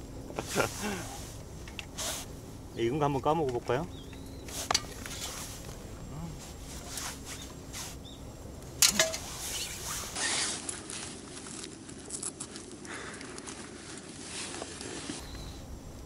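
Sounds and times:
shell clicks and scrapes: 0:04.1 - 0:05.8.

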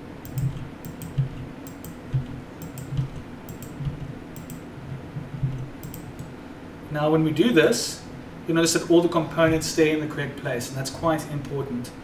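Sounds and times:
keyboard and mouse clicking: 0:00.2 - 0:04.6, 0:05.4 - 0:06.3.

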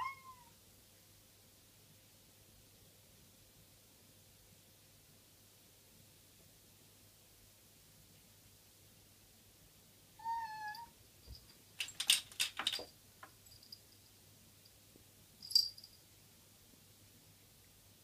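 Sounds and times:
cat meowing: 0:00.0 - 0:00.6, 0:10.2 - 0:10.9
clatter of clicks and knocks: 0:11.3 - 0:13.4.

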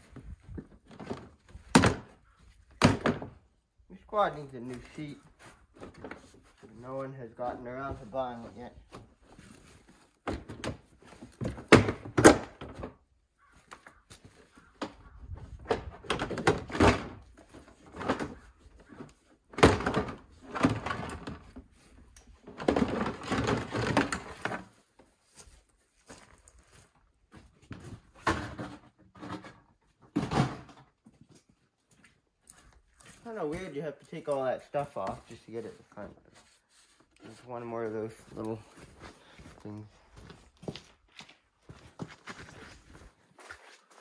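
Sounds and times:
plastic body parts knocking and rattling: 0:00.0 - 0:03.5, 0:05.5 - 0:06.8, 0:07.8 - 0:13.0, 0:14.8 - 0:24.8, 0:27.7 - 0:31.0.

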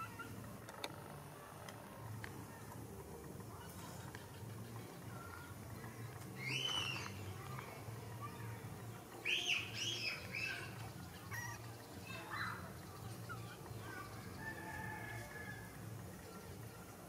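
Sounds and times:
steady low hum: 0:00.0 - 0:17.0
baby monkey squeaking: 0:11.2 - 0:11.6.

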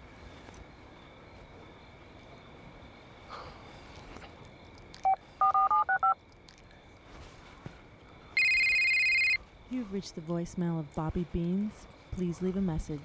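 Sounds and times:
phone keypad dialing beeps: 0:05.0 - 0:06.2, 0:08.4 - 0:09.4.

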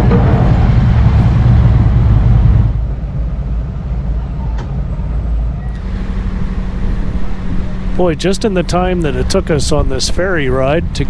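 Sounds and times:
low steady rumble: 0:00.0 - 0:11.0
low engine drone: 0:05.6 - 0:11.0
wind buffeting microphone: 0:05.8 - 0:11.0.

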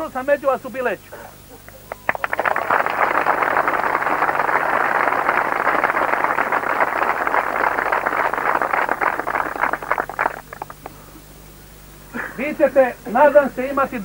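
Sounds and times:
crowd applauding: 0:01.6 - 0:10.9.

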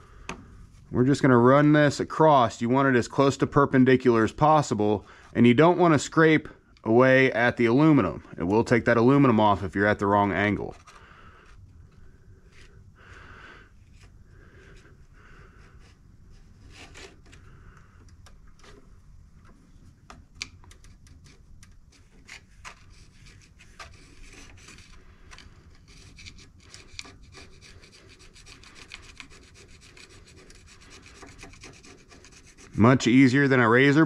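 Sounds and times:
hand scraper scraping metal: 0:25.7 - 0:32.8.

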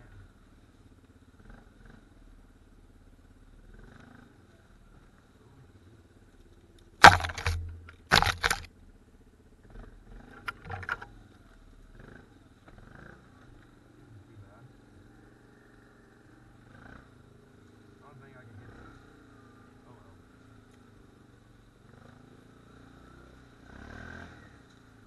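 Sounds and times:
engine running low and slow: 0:00.0 - 0:25.0
branches scraping camera: 0:07.0 - 0:08.7.

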